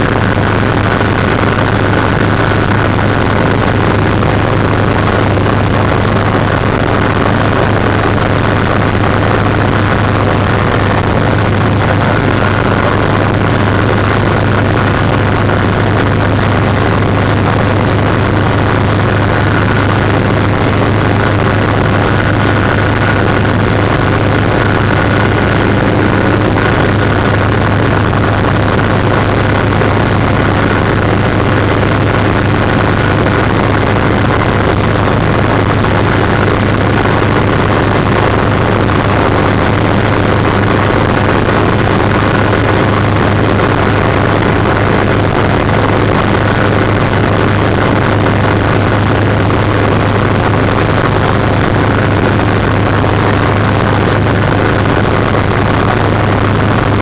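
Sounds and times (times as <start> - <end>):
helicopter engine and rotor drone: 0.0 - 49.8
thin high whine: 16.5 - 44.9.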